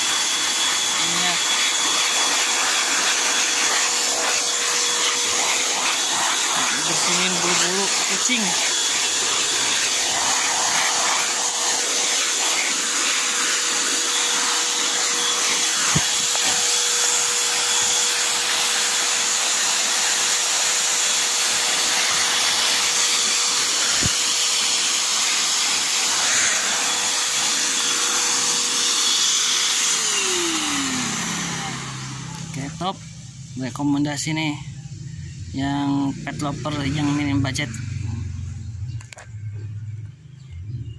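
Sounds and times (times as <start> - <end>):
rush of air through hose: 0.0 - 32.3
vacuum motor whine: 0.0 - 40.7.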